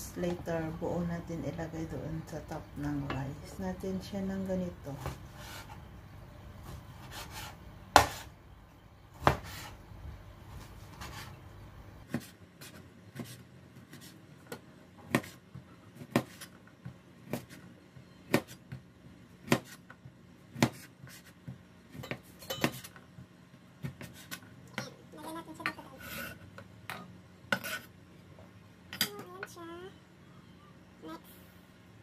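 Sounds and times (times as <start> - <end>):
slices clinking into steel bowl: 22.0 - 22.9.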